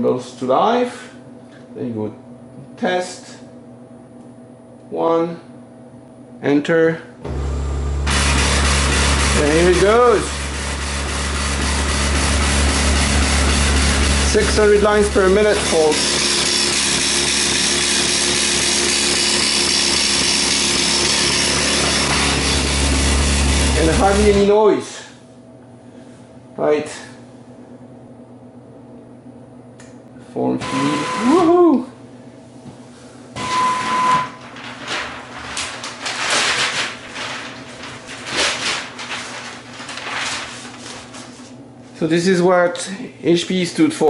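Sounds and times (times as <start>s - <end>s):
line printer running: 7.3s - 24.5s, 30.6s - 31.5s, 33.4s - 41.3s
paper rustling and scraping: 8.1s - 16.9s, 34.3s - 42.0s.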